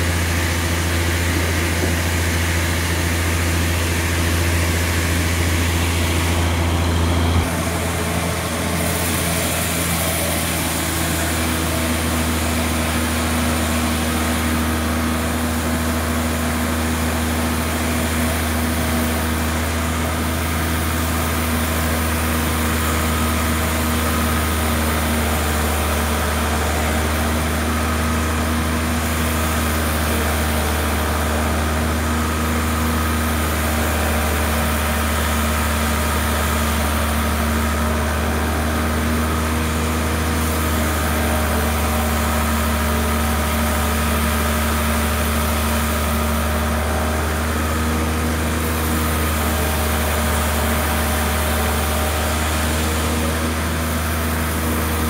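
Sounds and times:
sawmill machinery humming: 0.0 - 55.0.

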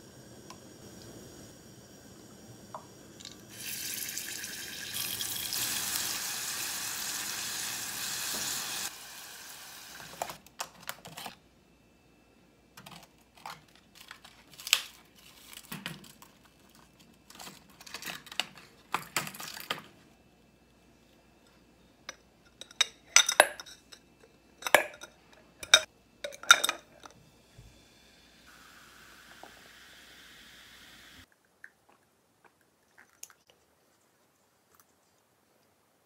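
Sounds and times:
greens sizzling in hot oil: 0.6 - 10.2.

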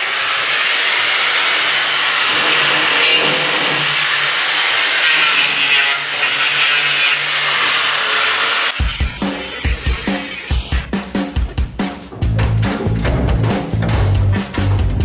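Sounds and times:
angle grinder cutting steel: 0.0 - 10.9.

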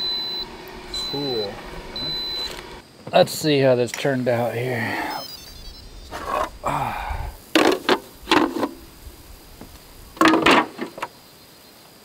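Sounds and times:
plastic lids clattering on wood: 7.6 - 8.8, 10.2 - 11.1.

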